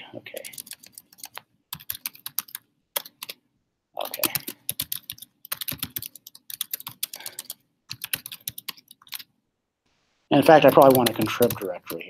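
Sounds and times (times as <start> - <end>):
typing on computer keyboard: 0.4 - 3.4, 4.0 - 9.3, 10.6 - 12.0.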